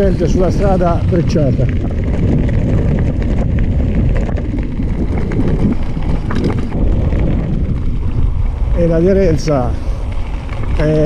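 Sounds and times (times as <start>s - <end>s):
bicycle tyres rolling on gravel: 0.0s - 11.0s
wind buffeting microphone: 0.0s - 11.0s
small stones clicking: 1.6s - 7.0s.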